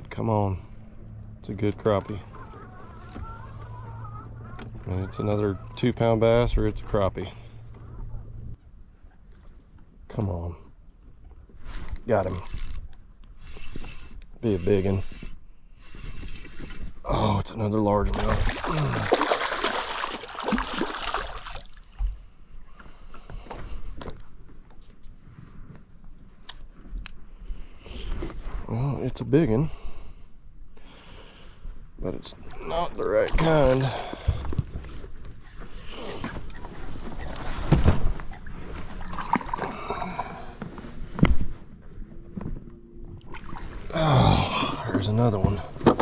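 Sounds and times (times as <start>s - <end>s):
fish thrashing and splashing: 18.1s - 22.0s, 38.3s - 40.4s
knocks and rustling in a boat: 33.2s - 39.6s, 40.6s - 43.8s, 45.0s - 46.0s.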